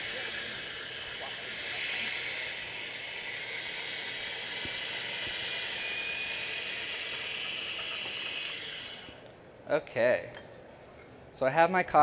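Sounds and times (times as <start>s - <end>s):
electric coffee grinder whirring: 0.0s - 9.3s.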